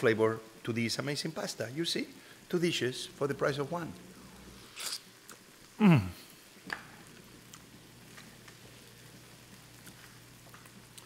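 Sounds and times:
man humming in enjoyment: 5.8s - 6.2s.

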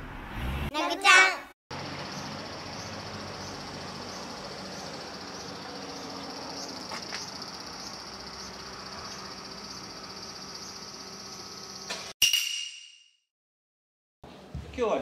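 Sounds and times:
insects droning: 1.7s - 12.1s.

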